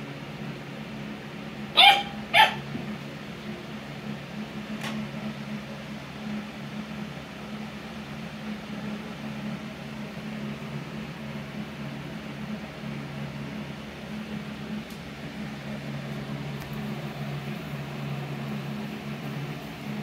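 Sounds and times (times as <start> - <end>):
puppy barking: 1.7 - 2.7.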